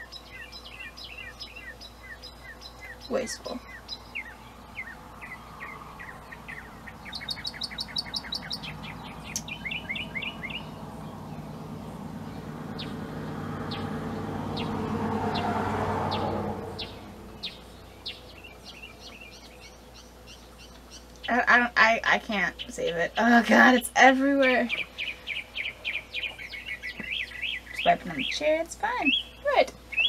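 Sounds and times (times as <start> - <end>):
small bird chirping: 0.0 - 15.5, 16.1 - 21.6, 24.4 - 30.0
broad rushing sound: 4.6 - 17.8.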